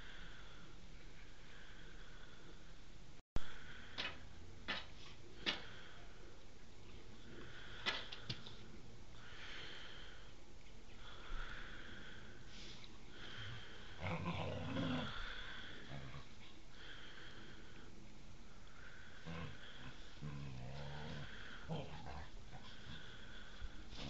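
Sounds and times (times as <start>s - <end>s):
dogs play growling: 13.5s - 16.6s, 19.2s - 24.0s.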